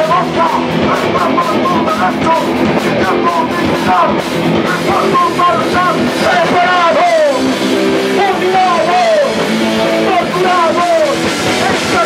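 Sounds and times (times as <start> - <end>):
bass guitar: 0.0 - 12.0
distorted electric guitars: 0.0 - 12.0
pounding drum kit: 0.0 - 12.0
vocalist shouting into microphone: 4.8 - 7.4.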